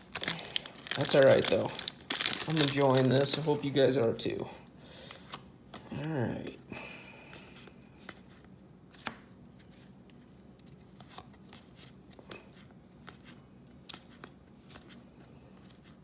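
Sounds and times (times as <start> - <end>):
cards flipped by hand: 7.6 - 12.4, 13.0 - 15.0.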